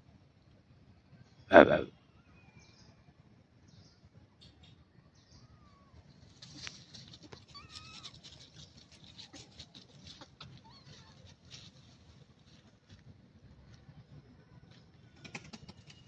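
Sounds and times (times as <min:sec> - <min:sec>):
high animal chirps and clicks: 0:07.4 - 0:09.3.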